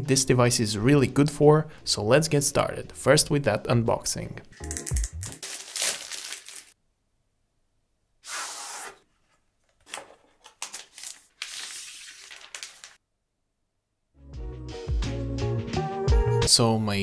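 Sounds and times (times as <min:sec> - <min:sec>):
music: 0:04.5 - 0:05.4, 0:14.2 - 0:17.0
plastic sleeve crinkling: 0:04.6 - 0:06.8, 0:09.8 - 0:13.0.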